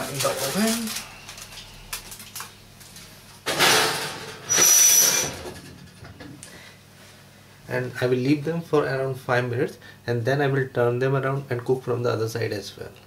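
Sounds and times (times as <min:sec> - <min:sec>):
metal scrape with high squeal: 0:04.5 - 0:05.4.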